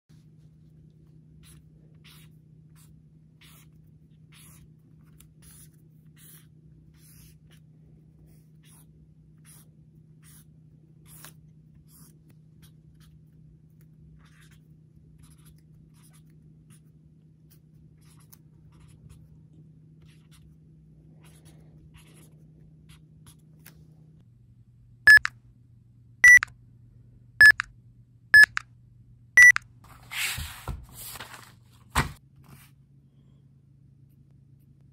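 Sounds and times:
marker scratching on paper: 1.4s - 7.6s, 8.3s - 13.2s, 14.2s - 14.6s
short electronic beeps: 25.1s - 25.3s, 26.2s - 26.5s, 27.4s - 27.7s, 28.4s - 28.6s, 29.4s - 29.6s
paper rustle: 29.8s - 32.6s.

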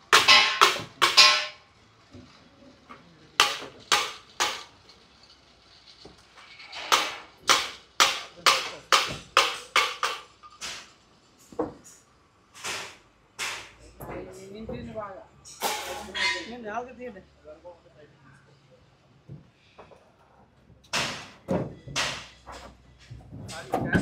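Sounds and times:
hammer blows: 0.0s - 1.7s.

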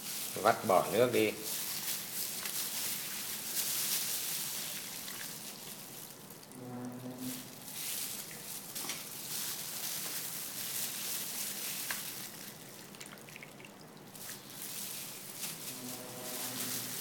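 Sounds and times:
wet squishing: 1.4s - 6.6s, 7.9s - 15.4s
liquid dripping into bowl: 12.8s - 14.1s.

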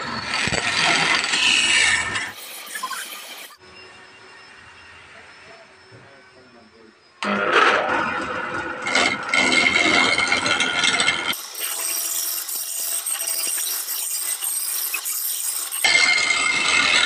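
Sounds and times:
wood lathe turning: 0.0s - 3.6s, 8.8s - 17.0s.

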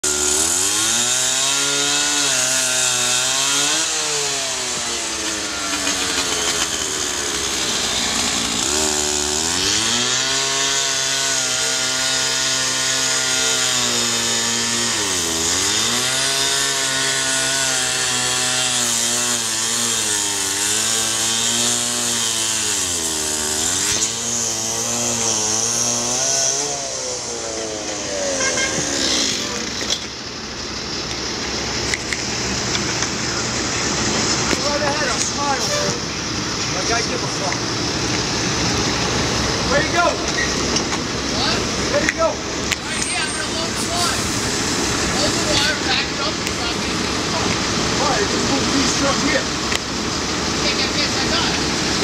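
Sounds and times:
cut-off saw engine revving: 0.0s - 30.1s, 31.6s - 52.0s
blade grinding through steel: 0.0s - 30.2s.

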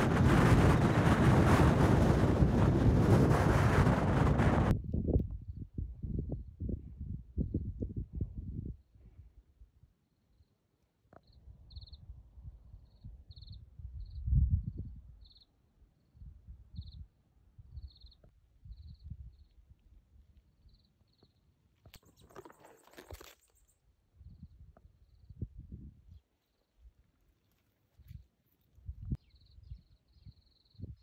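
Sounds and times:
low rumbling on microphone: 0.0s - 8.8s.

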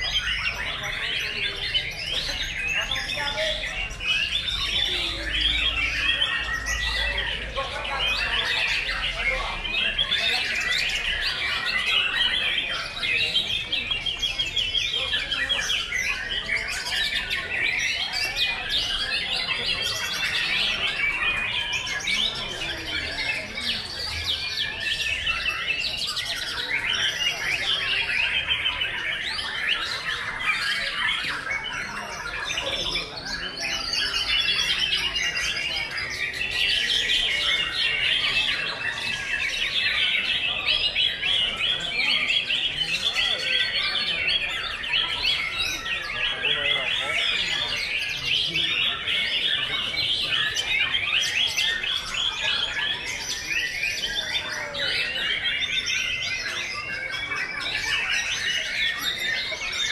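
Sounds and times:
chorus of songbirds: 0.0s - 59.9s.

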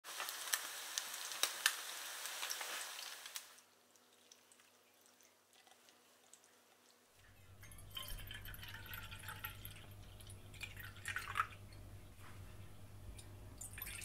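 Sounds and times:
fish sizzling in oil: 0.1s - 3.6s
liquid dripping: 3.6s - 14.0s.

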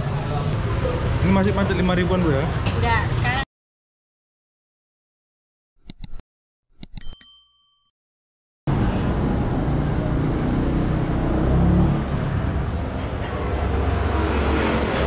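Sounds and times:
street traffic rumble: 0.0s - 3.4s, 8.7s - 15.0s.

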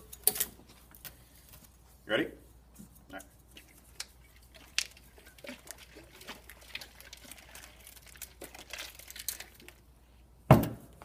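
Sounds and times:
sediment rattling in glass jar: 4.3s - 9.8s.

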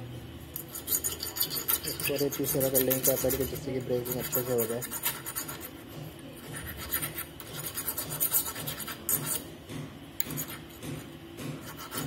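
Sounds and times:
hand file rasping on metal tube: 0.6s - 5.8s, 6.5s - 9.5s, 11.6s - 12.0s.

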